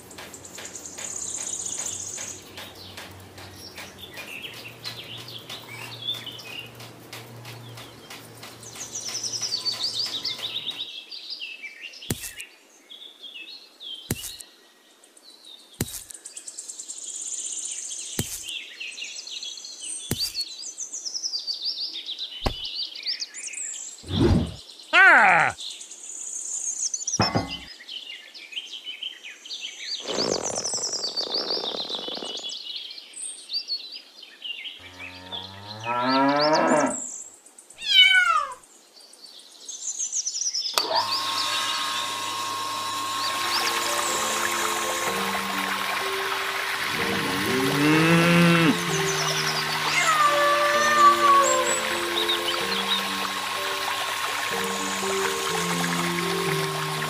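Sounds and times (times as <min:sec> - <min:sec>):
small birds chirping: 0:00.0 - 0:42.0, 0:43.1 - 0:57.0
bird call sliding up and down: 0:30.0 - 0:32.5, 0:40.8 - 0:47.0, 0:48.7 - 0:57.0.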